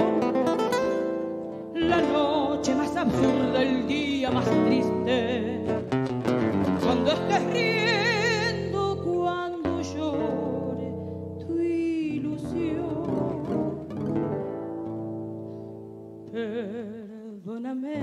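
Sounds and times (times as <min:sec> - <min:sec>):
acoustic guitar tango: 0:00.0 - 0:17.1
woman singing: 0:01.6 - 0:14.0, 0:16.2 - 0:18.0.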